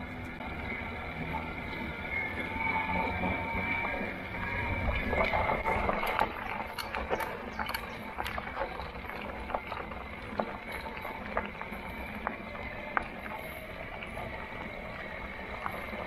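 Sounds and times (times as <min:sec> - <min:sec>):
bike ride rumble on rough trail: 0:00.0 - 0:16.0
irregular clicks and rattles: 0:05.1 - 0:16.0.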